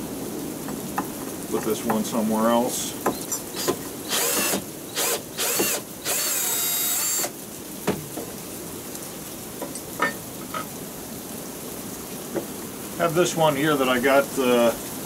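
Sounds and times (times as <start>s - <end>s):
cordless drill motor whining: 3.5s - 7.3s.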